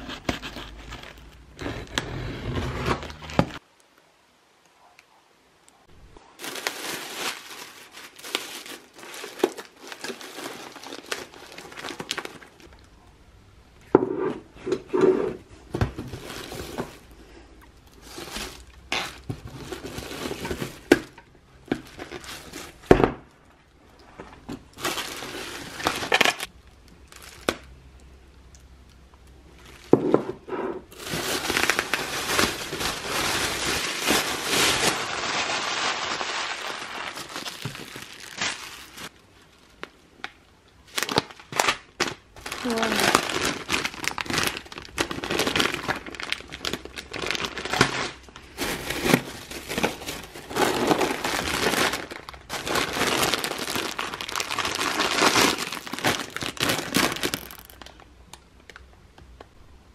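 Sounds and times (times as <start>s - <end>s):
plastic packaging crinkling: 6.4s - 12.8s, 15.9s - 23.0s, 24.4s - 27.8s, 30.9s - 58.8s.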